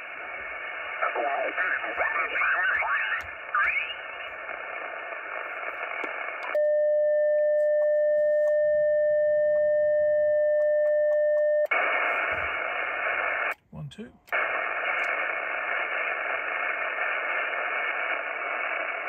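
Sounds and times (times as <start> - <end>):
radio speaker hiss: 0.0 - 6.6, 11.7 - 19.0
steady radio beep: 0.9 - 4.0.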